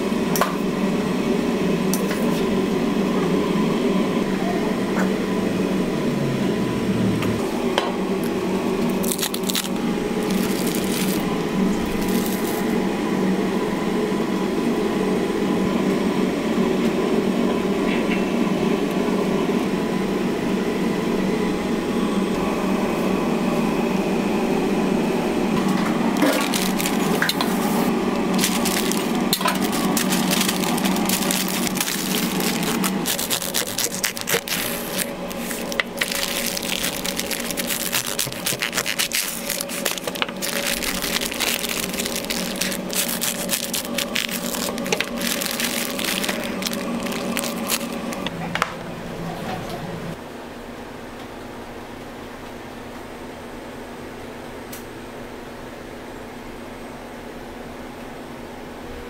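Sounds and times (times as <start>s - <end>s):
steady low hum: 0.0s - 50.2s
paper wrapper crinkling: 8.8s - 12.7s, 26.1s - 48.3s.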